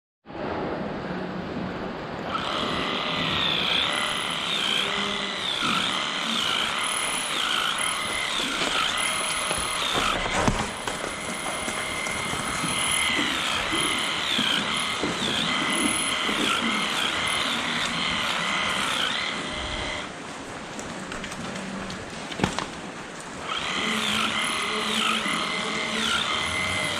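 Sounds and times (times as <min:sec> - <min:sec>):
electric clippers whining: 0:02.2 - 0:20.2, 0:23.4 - 0:26.9.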